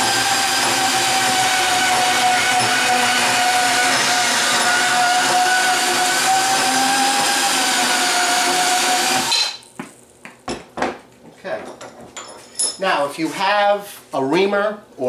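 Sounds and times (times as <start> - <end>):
bandsaw cutting steel pipe: 0.0 - 9.6.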